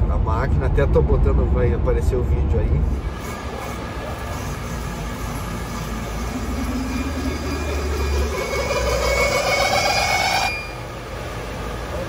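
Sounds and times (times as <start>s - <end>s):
wheel balancer whine: 2.9s - 12.0s.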